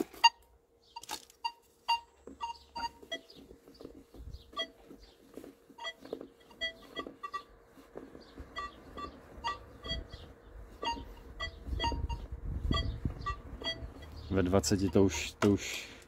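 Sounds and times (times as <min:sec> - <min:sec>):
metal detector beeps: 0:00.0 - 0:03.5, 0:04.4 - 0:05.0, 0:05.7 - 0:07.6, 0:08.5 - 0:15.4.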